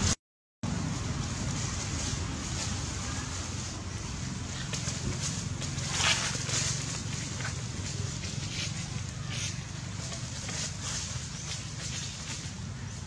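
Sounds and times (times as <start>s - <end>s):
rustles and crackles: 0.0s - 13.0s.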